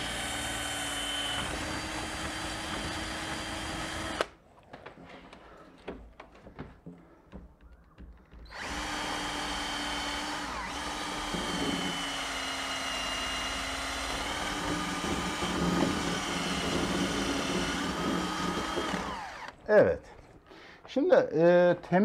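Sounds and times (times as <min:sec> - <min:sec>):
small electric motor tool whining: 0:00.0 - 0:04.3, 0:08.5 - 0:19.6.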